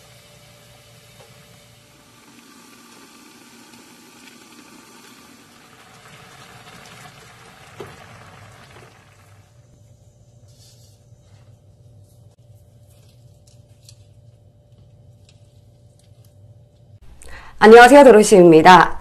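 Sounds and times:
broth boiling in a pan: 0.0s - 9.9s.

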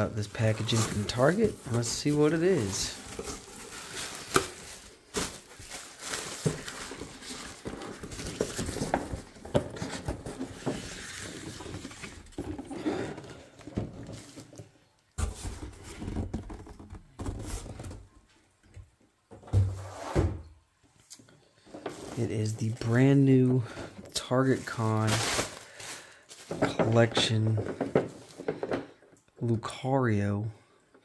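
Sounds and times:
plastic packing crinkling: 0.0s - 12.2s, 21.9s - 27.8s.

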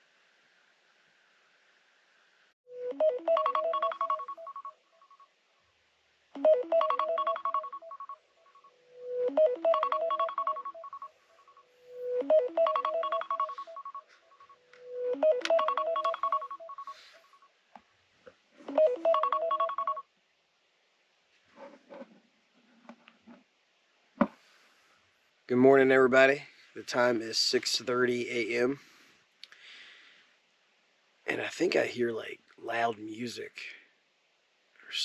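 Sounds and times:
phone alarm beeping melody: 2.7s - 4.8s, 6.4s - 8.2s, 8.9s - 17.4s, 18.7s - 20.0s.

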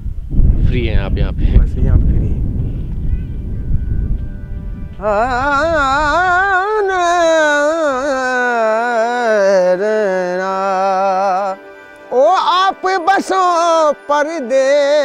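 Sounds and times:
wind rumble on microphone: 0.0s - 8.8s
man singing unaccompanied: 5.0s - 15.0s.

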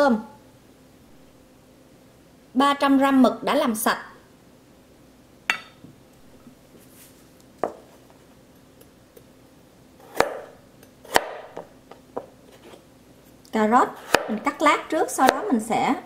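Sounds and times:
knife chopping carrot on board: 10.0s - 12.3s, 14.0s - 14.4s.

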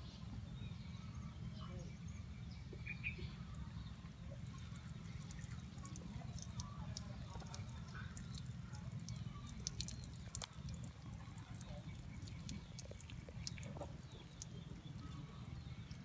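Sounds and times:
frog clicks and ticks: 4.3s - 16.0s.

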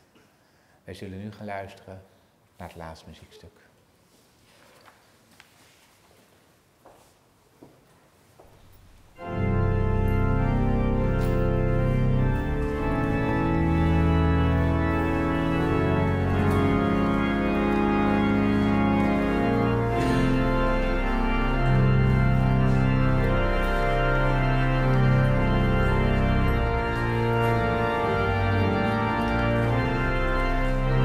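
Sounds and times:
organ playing slow chords: 8.6s - 31.0s.

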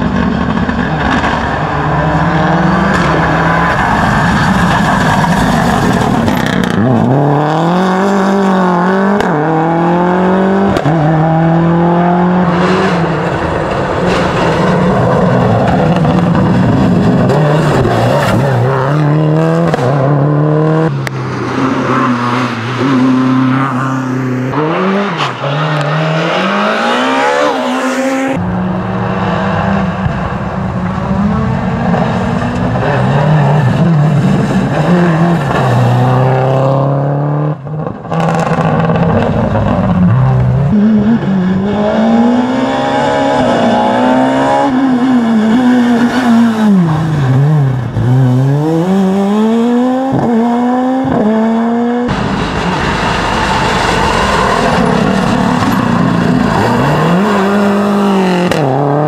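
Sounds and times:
rally car engines revving: 0.0s - 59.0s.

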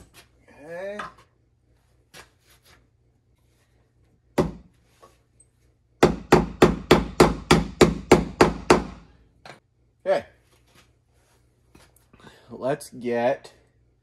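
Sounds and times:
hammer strikes: 4.4s - 4.7s, 6.0s - 9.6s.

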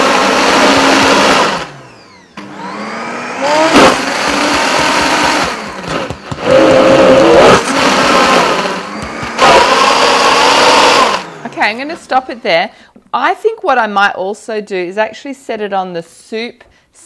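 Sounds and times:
blender motor whining: 0.0s - 11.8s.

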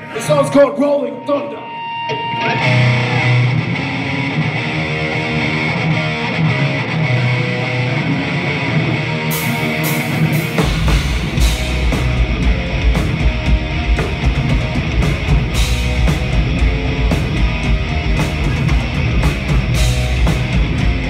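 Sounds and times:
distorted electric guitar riff: 0.0s - 21.0s
bass guitar: 1.8s - 21.0s.

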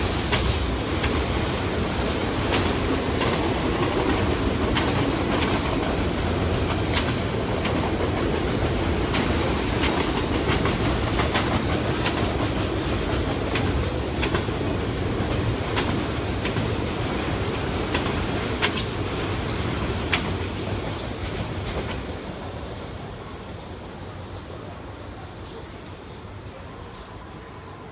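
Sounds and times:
clickety-clack of wheels on rail: 0.0s - 27.9s
freight train rolling by: 0.0s - 27.9s.

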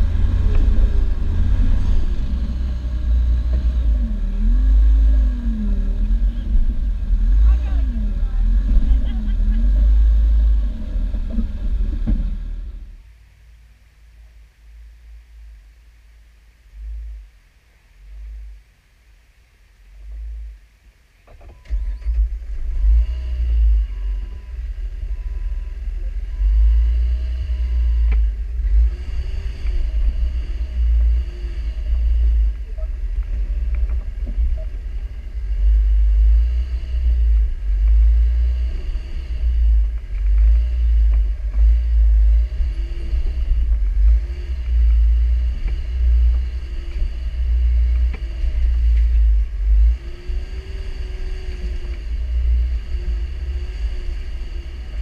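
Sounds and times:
deep engine rumble: 0.0s - 55.0s.

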